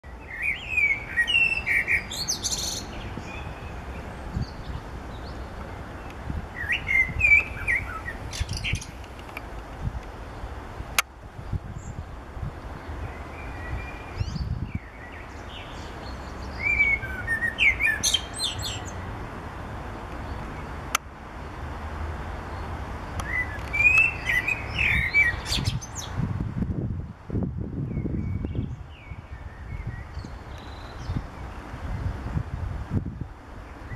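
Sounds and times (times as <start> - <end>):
blackbird singing: 0.0 - 5.5, 6.5 - 9.0, 13.0 - 19.1, 23.2 - 26.2, 27.9 - 31.5.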